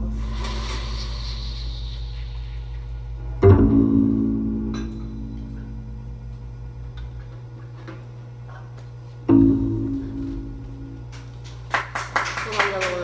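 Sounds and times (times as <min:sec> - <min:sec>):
low steady hum: 0:00.0 - 0:13.0
struck instrument note ringing: 0:03.2 - 0:06.0, 0:09.3 - 0:11.1.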